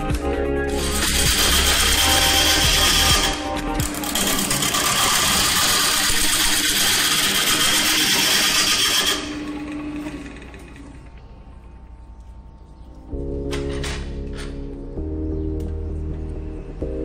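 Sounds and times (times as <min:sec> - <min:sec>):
gouge cutting wood on lathe: 0:00.7 - 0:11.0
lathe running: 0:00.7 - 0:12.0.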